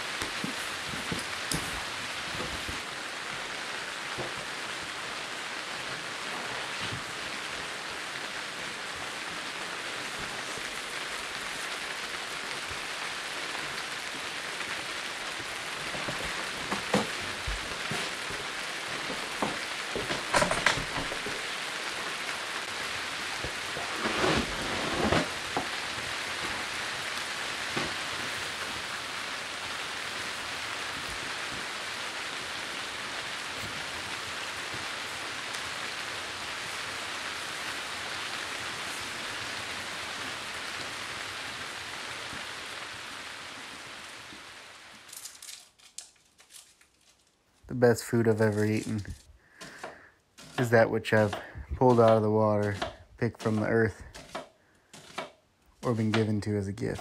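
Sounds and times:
steady hiss: 0:00.0 - 0:54.5
paper rustling on block: 0:23.5 - 0:26.7, 0:45.0 - 0:47.4.

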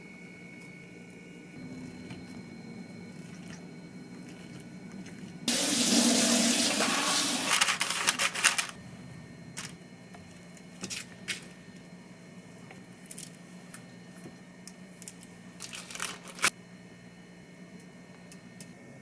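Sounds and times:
tap running in a sink: 0:05.5 - 0:07.6.

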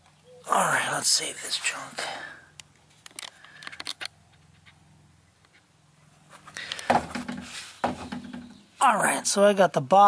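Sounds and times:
phone being handled: 0:02.9 - 0:04.8.

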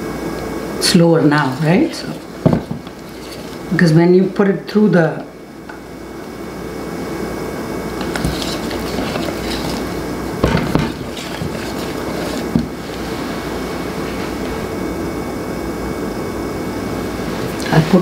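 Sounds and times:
whisk stirring batter: 0:01.3 - 0:03.8, 0:08.0 - 0:13.2
whisk knocking against bowl: 0:01.9 - 0:03.6, 0:08.0 - 0:12.8.

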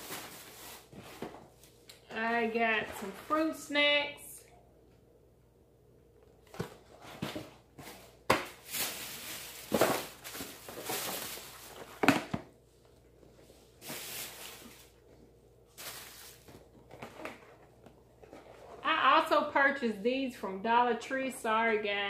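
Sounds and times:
packaging rustling and crinkling: 0:00.0 - 0:01.8, 0:06.5 - 0:12.4, 0:13.8 - 0:15.0, 0:15.7 - 0:18.8
items knocking when set down: 0:09.6 - 0:12.5.

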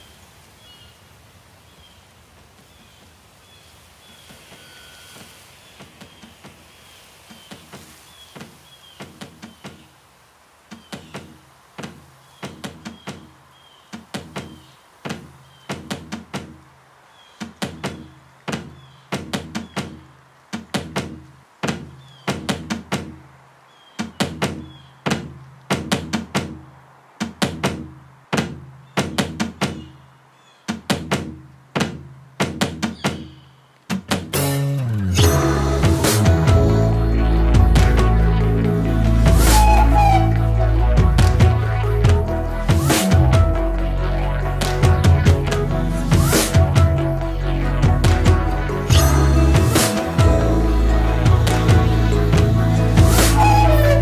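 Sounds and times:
percussive beat of knocks and thuds: 0:10.8 - 0:13.3, 0:13.9 - 0:16.6, 0:17.4 - 0:23.2, 0:24.0 - 0:26.6, 0:27.2 - 0:29.9, 0:30.7 - 0:33.3, 0:33.9 - 0:34.4, 0:41.0 - 0:43.6.

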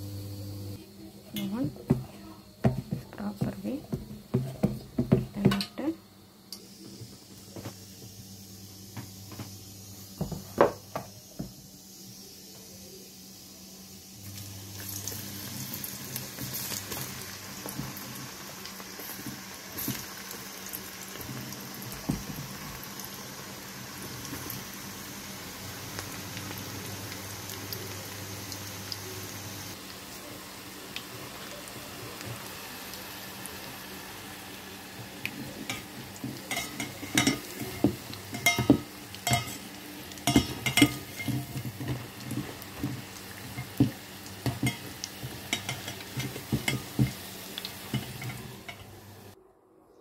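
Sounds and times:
oil sizzling: 0:00.0 - 0:49.4
metal utensil scraping a pan: 0:35.7 - 0:42.4, 0:44.4 - 0:47.2.

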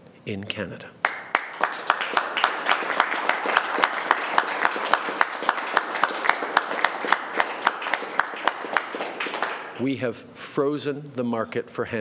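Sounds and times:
hands clapping sharply nearby: 0:01.0 - 0:09.8
small group applauding: 0:01.0 - 0:09.8.

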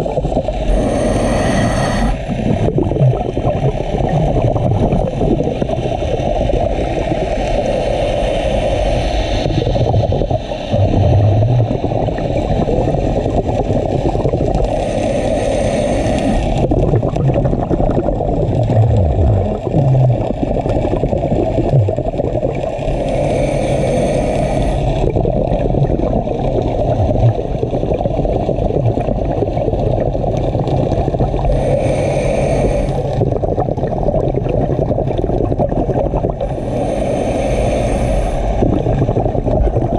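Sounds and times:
low underwater rumble: 0:00.0 - 0:07.6, 0:09.2 - 0:14.8, 0:16.4 - 0:23.0, 0:24.7 - 0:31.5, 0:38.0 - 0:39.9
regulator bubbles gurgling: 0:00.0 - 0:39.9.

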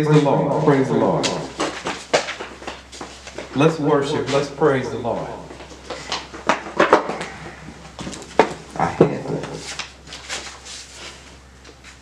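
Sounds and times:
paper sheets rustling: 0:09.2 - 0:12.0.

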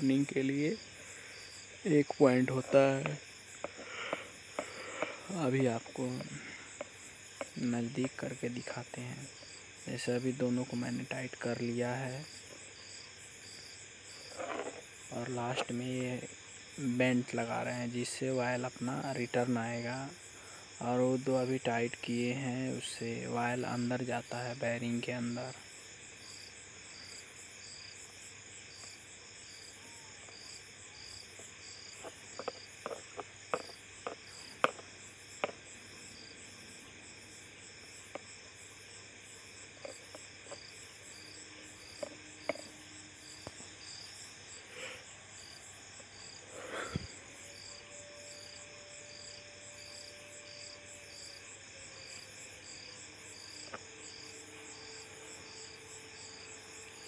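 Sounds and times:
sharp metallic clicks and taps: 0:32.4 - 0:35.6.

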